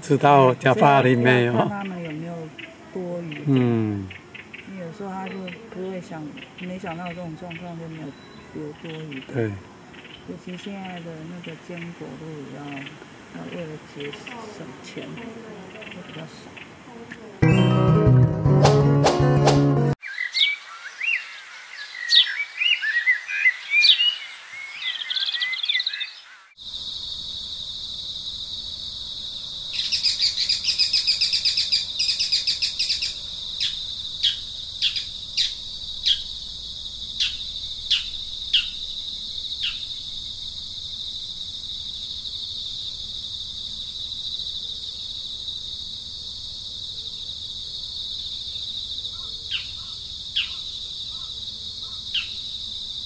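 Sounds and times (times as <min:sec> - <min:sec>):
birds chirping: 0:00.0 - 0:17.8, 0:48.6 - 0:52.6.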